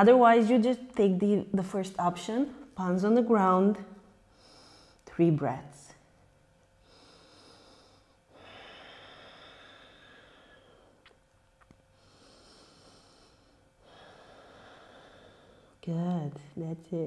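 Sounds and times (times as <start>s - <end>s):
person breathing deeply: 4.3s - 5.0s, 6.8s - 11.0s, 12.0s - 15.8s.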